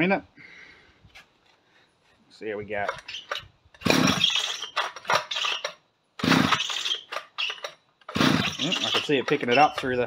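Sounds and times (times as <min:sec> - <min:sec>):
chainsaw being pull-started: 0:02.9 - 0:10.0.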